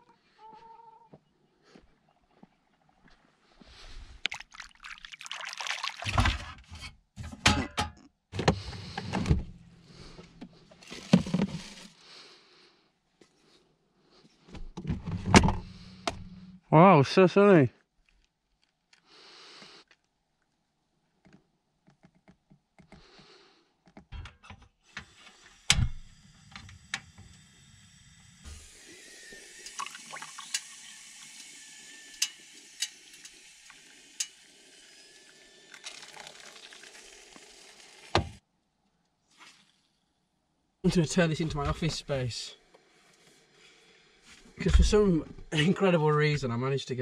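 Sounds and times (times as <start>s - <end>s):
coffee pouring into a mug: 4.2s - 6.4s, 28.8s - 38.2s
gas stove hissing: 24.9s - 35.7s.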